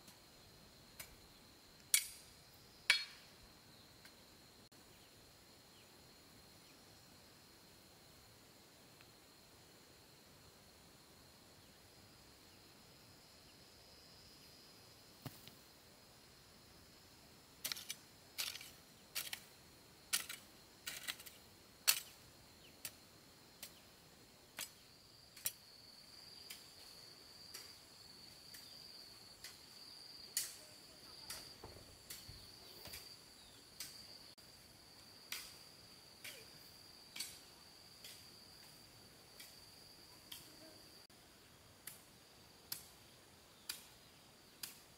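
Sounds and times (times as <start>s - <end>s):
high insect trill: 0.0s - 44.9s.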